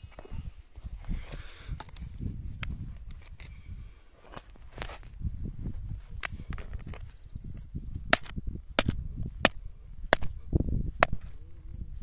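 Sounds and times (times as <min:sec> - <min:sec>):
rock striking steel stake: 0:08.1 - 0:10.4, 0:11.0 - 0:11.3.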